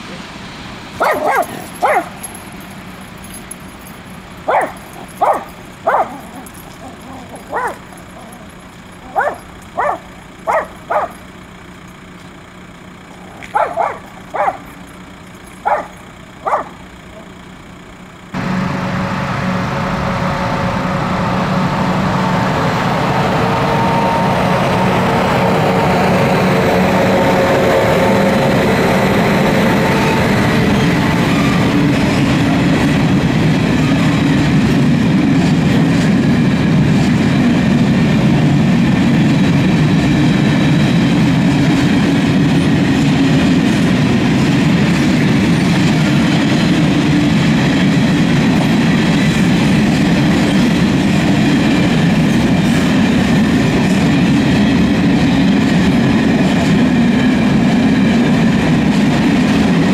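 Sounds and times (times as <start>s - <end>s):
freight train rumble: 0.0s - 59.9s
dog barking: 1.0s - 2.2s, 4.5s - 8.4s, 9.0s - 11.2s, 13.5s - 14.7s, 15.6s - 16.8s.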